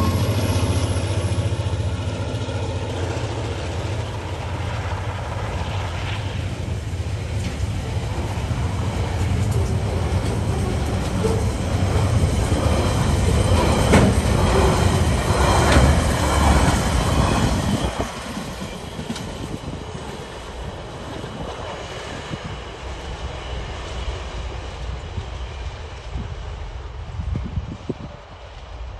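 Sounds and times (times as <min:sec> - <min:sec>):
train rumble: 0:00.0 - 0:28.9
freight train wheels clattering on rails: 0:06.5 - 0:22.7.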